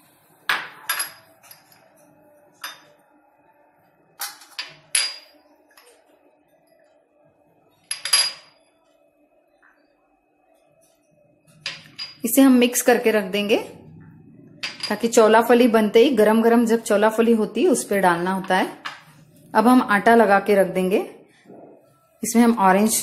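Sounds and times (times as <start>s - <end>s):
glass bowls clinking on stone: 0.5s - 2.0s, 2.6s - 3.0s, 4.3s - 5.4s, 7.9s - 8.6s, 11.5s - 12.2s, 14.6s - 15.1s.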